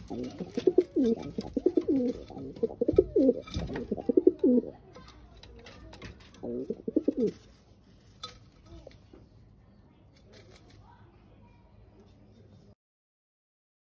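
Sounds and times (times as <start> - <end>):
pigeon cooing: 0.0 - 4.8, 6.3 - 7.4.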